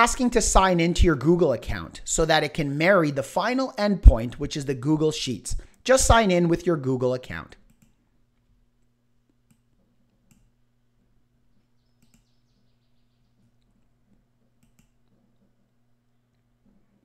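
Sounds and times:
steady low hum: 0.0s - 17.0s
computer mouse clicks: 9.4s - 10.5s, 12.0s - 12.3s, 14.6s - 15.5s.

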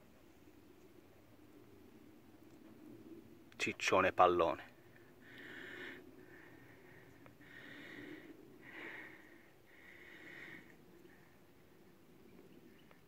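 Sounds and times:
faint breathing: 4.8s - 11.8s.

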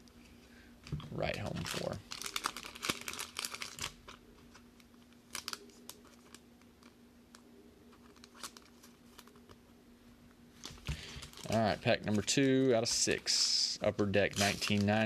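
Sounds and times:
steady low hum: 0.0s - 15.0s
plastic card sleeve rustling: 1.3s - 7.0s, 7.9s - 9.6s, 10.6s - 15.0s.

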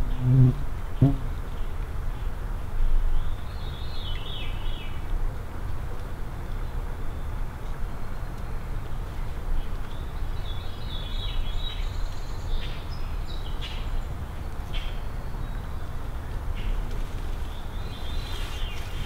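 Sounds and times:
steady low rumble: 0.0s - 1.9s
songbirds chirping: 0.0s - 19.0s.

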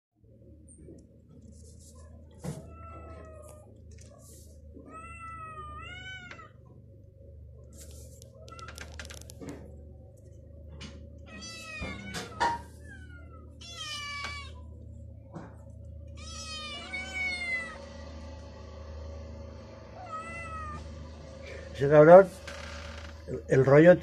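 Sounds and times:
cat meowing: 2.4s - 3.8s, 4.8s - 6.6s, 11.2s - 14.6s, 16.1s - 17.9s, 20.0s - 20.9s.

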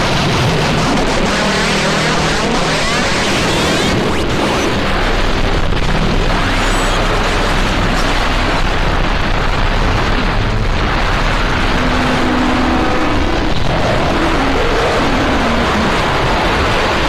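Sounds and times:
harsh distorted noise music: 0.0s - 17.0s
held low tone: 0.8s - 16.3s.

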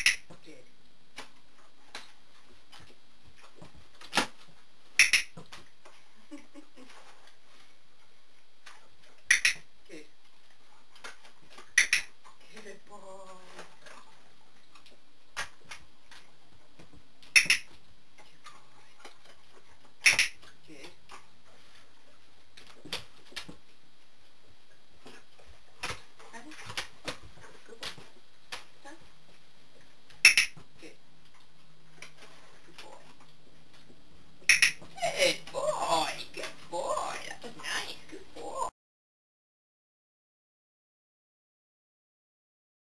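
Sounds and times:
training clicker click: 5.0s - 5.4s, 9.3s - 9.6s, 11.8s - 12.1s, 17.4s - 17.7s, 20.0s - 20.4s, 30.2s - 30.6s, 34.5s - 34.8s.

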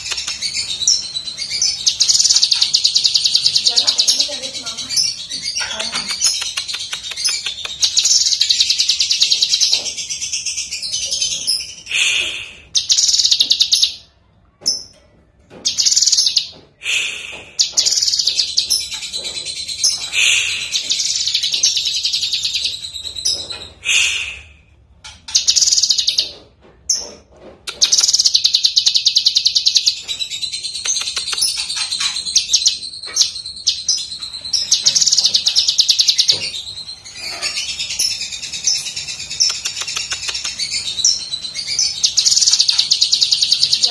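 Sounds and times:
bird singing rapid trills: 0.0s - 11.8s, 12.8s - 14.0s, 17.6s - 23.5s, 25.2s - 26.3s, 27.8s - 43.9s.

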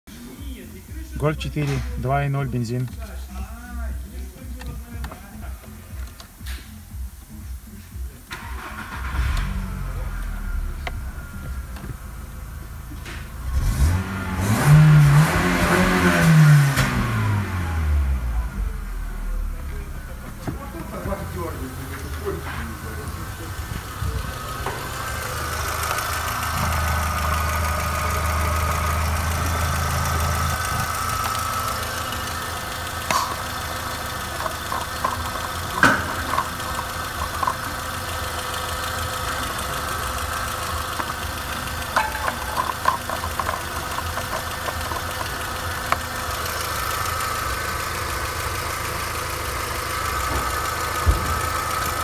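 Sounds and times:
car engine idling: 0.1s - 52.0s
sharp clicks and ticks: 23.7s - 48.6s.

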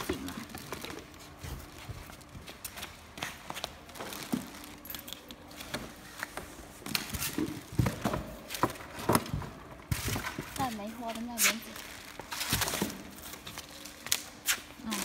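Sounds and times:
plastic sheeting rustling: 9.9s - 15.0s.

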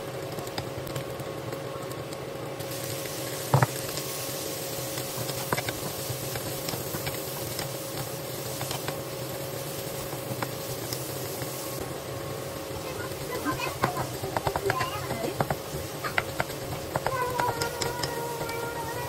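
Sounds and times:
seafood sizzling in a wok: 0.0s - 19.0s
wooden spatula clicking on pan: 13.7s - 18.7s.

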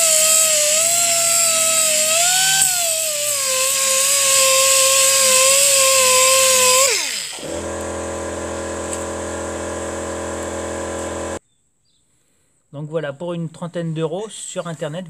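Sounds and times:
air compressor humming: 0.0s - 11.4s
pneumatic sander whine: 0.0s - 11.4s.

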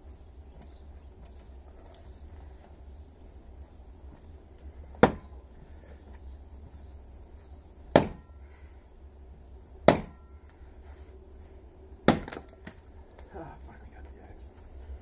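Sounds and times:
axe chopping into a log: 5.0s - 5.3s, 7.9s - 8.3s, 9.8s - 10.2s, 12.0s - 12.8s.

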